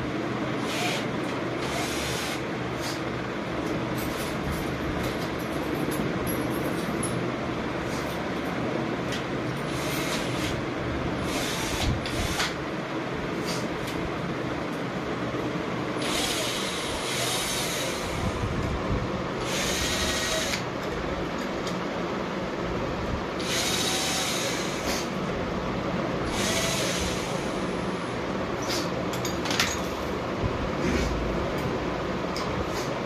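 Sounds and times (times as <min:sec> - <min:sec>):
cordless drill whirring: 0:00.6 - 0:02.4, 0:09.7 - 0:10.6, 0:11.2 - 0:12.6, 0:16.0 - 0:18.3, 0:19.4 - 0:20.6, 0:23.4 - 0:24.9, 0:26.3 - 0:27.6.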